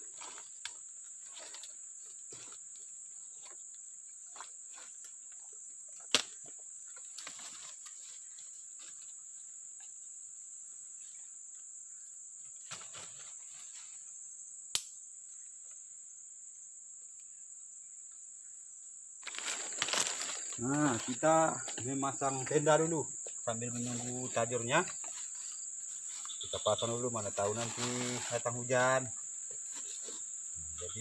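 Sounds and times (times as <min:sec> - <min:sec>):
leaves and twigs rustling: 0:00.0 - 0:05.2, 0:06.0 - 0:09.2, 0:12.6 - 0:14.1, 0:19.2 - 0:31.0
insects droning: 0:00.0 - 0:31.0.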